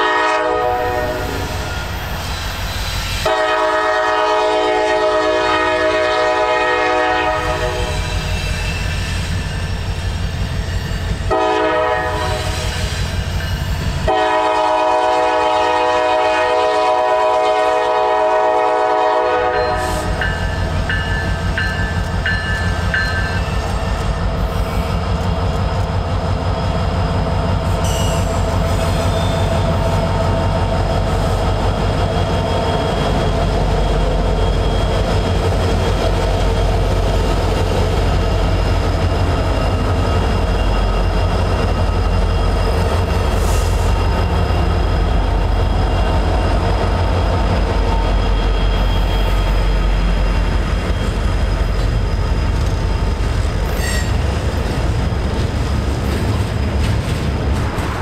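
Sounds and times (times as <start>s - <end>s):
locomotive horn: 0.0s - 1.7s, 3.2s - 8.1s, 11.3s - 12.6s, 14.0s - 20.2s
freight train rumbling: 0.0s - 58.0s.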